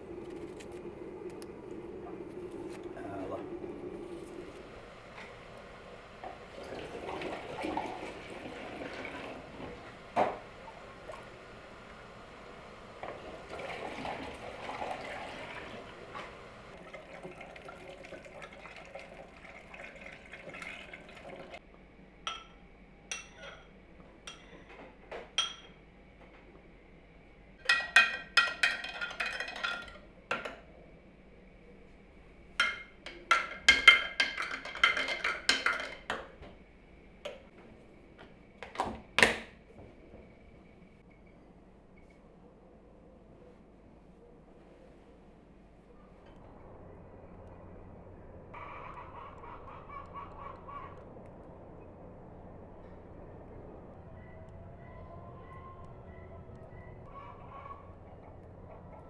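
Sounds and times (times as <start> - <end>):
liquid pouring into glass jar: 16.8 - 21.6.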